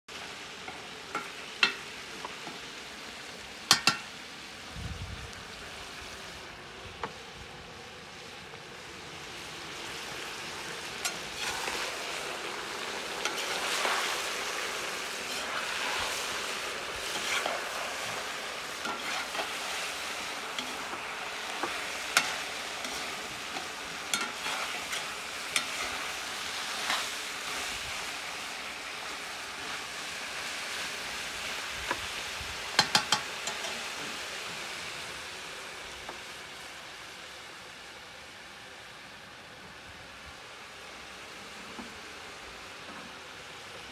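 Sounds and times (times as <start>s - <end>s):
food sizzling in a pot: 0.1s - 39.0s, 39.8s - 43.9s
skimmer scraping through food: 11.0s - 28.0s.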